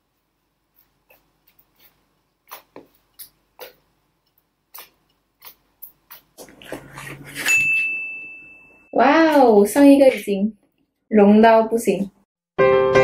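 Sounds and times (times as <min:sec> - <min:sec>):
high ringing tone: 0:07.4 - 0:09.0.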